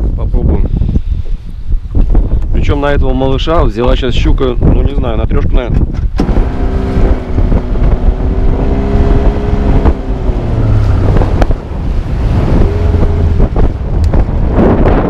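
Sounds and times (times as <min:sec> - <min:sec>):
wind buffeting microphone: 0:00.0 - 0:15.0
outboard motor running: 0:06.0 - 0:15.0.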